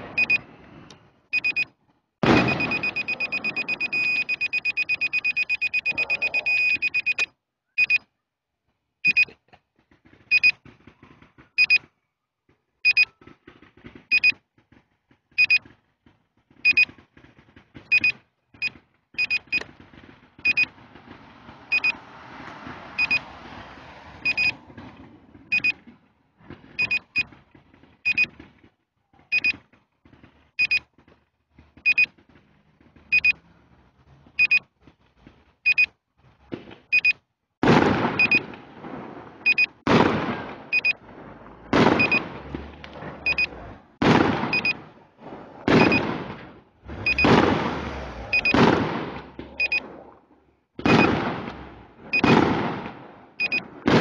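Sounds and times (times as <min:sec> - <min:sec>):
electronic warning beeps: 0:00.1 - 0:00.5, 0:01.3 - 0:01.7, 0:02.3 - 0:08.1, 0:09.0 - 0:09.4, 0:10.3 - 0:10.6, 0:11.6 - 0:11.8, 0:12.8 - 0:13.1, 0:14.1 - 0:14.4, 0:15.4 - 0:15.6, 0:16.6 - 0:16.9, 0:17.9 - 0:19.6, 0:20.4 - 0:20.7, 0:21.7 - 0:22.0, 0:23.0 - 0:23.2, 0:24.2 - 0:24.6, 0:25.5 - 0:25.8, 0:26.8 - 0:27.3, 0:28.0 - 0:28.3, 0:29.3 - 0:29.6, 0:30.6 - 0:30.9, 0:31.8 - 0:32.1, 0:33.1 - 0:33.4, 0:34.4 - 0:34.7, 0:35.6 - 0:35.9, 0:36.9 - 0:37.2, 0:38.2 - 0:38.4, 0:39.4 - 0:39.8, 0:40.7 - 0:41.0, 0:42.0 - 0:42.2, 0:43.2 - 0:43.6, 0:44.5 - 0:44.8, 0:45.8 - 0:46.0, 0:47.0 - 0:47.4, 0:48.3 - 0:48.6, 0:49.5 - 0:49.9, 0:52.1 - 0:52.3, 0:53.4 - 0:53.6.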